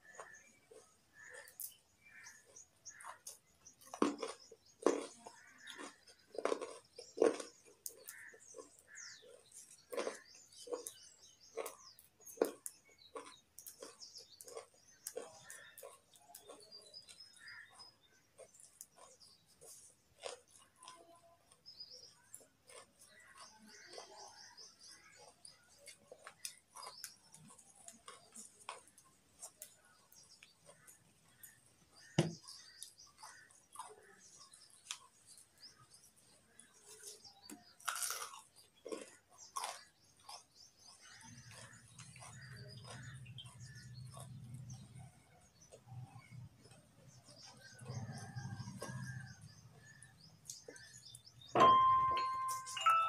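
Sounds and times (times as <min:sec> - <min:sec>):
carrot chewing crunches: 0:00.0 - 0:53.0.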